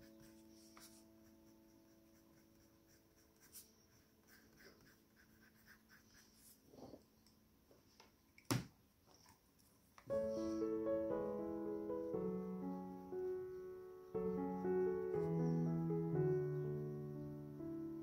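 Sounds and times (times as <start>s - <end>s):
pencil scratching on paper: 0.0s - 7.0s
held musical note: 10.1s - 18.0s.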